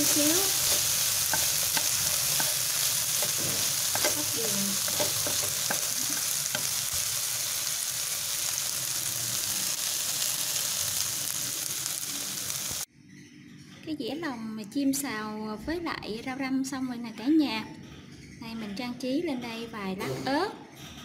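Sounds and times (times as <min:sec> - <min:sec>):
food sizzling in a hot pan: 0:00.0 - 0:12.9.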